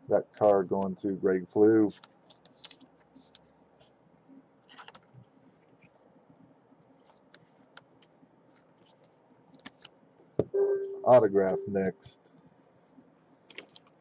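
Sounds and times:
plastic card sleeve rustling: 1.9s - 3.9s, 4.6s - 6.0s, 7.0s - 7.8s, 8.5s - 9.9s, 13.5s - 14.0s.

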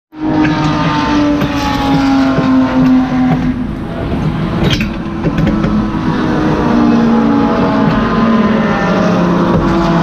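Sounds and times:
race car engine running: 0.2s - 10.0s
sharp knocks and rattles: 0.9s - 6.2s.

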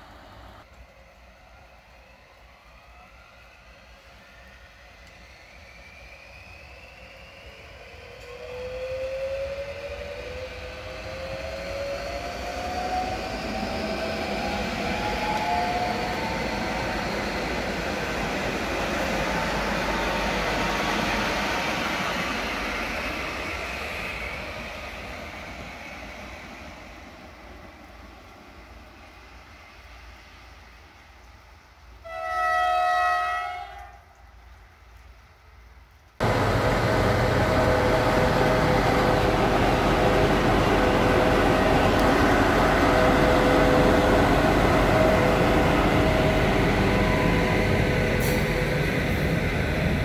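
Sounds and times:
electric train motor whine: 4.1s - 23.0s, 36.2s - 50.0s
wheel and rail noise: 33.7s - 50.0s.

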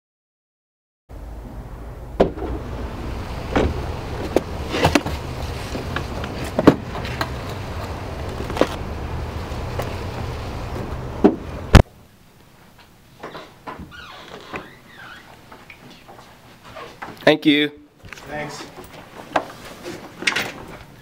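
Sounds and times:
steady low rumble: 1.1s - 12.1s
loud thump: 1.4s - 5.3s, 10.8s - 11.9s
skateboards knocking and clunking: 2.2s - 8.8s, 9.4s - 11.8s.

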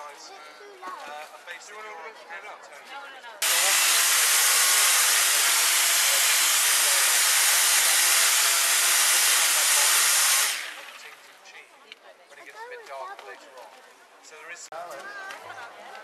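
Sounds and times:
electric chainsaw cutting ice: 3.4s - 11.3s.

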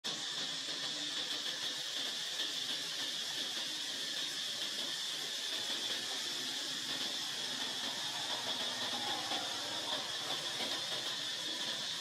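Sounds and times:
insects droning: 5.4s - 12.0s.

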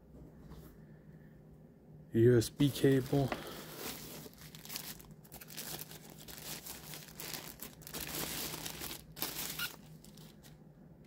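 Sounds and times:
plastic bag crinkling: 2.8s - 10.6s.

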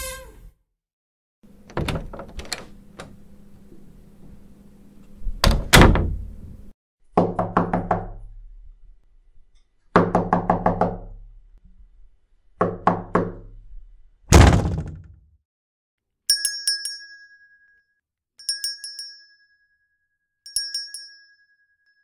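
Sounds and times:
door shutting heavy thuds: 1.6s - 3.2s, 5.4s - 6.5s, 14.3s - 15.2s
door latch clicks: 1.7s - 3.2s
knocking on wooden door: 10.0s - 11.0s.

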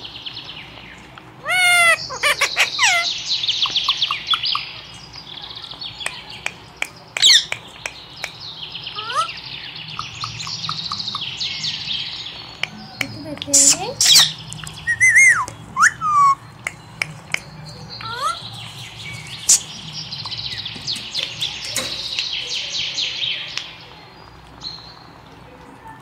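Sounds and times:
parakeet squawking and chirping: 1.4s - 4.9s, 7.2s - 7.6s, 8.9s - 11.8s, 12.8s - 22.7s
rapid high twittering: 5.9s - 23.8s
sharp clicks: 19.5s - 22.4s.

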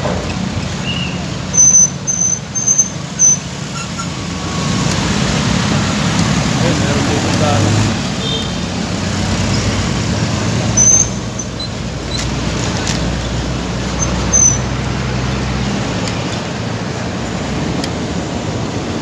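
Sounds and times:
traffic engine hum: 0.0s - 19.0s
high squeak: 0.8s - 4.7s, 10.7s - 12.3s, 13.9s - 14.8s.

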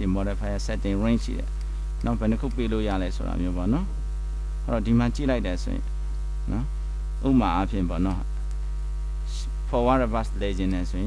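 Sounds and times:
man speaking: 0.0s - 4.0s, 4.6s - 5.9s, 6.5s - 8.3s, 9.3s - 11.0s
low mains hum: 0.0s - 11.0s.

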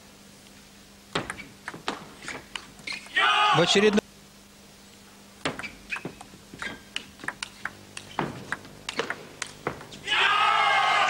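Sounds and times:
table tennis ball clicking: 5.5s - 9.6s.

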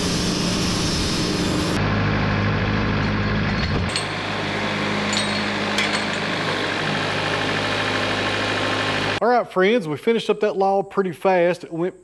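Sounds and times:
sawmill engine running: 0.0s - 9.2s.

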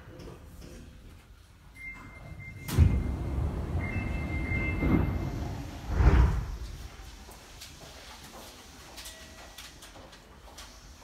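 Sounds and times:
sliding doors rumbling open: 2.5s - 7.2s.

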